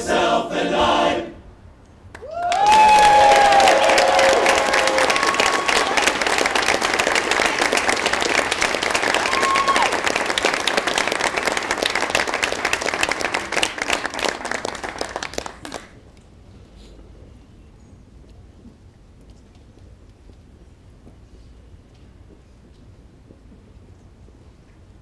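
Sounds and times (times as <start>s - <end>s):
crowd applauding: 2.1s - 16.0s.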